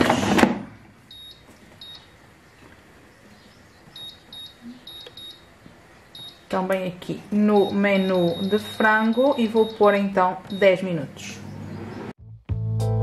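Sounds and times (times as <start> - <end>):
short high beeps: 1.1 - 2.1, 4.0 - 5.5, 6.2 - 6.4, 7.6 - 9.8.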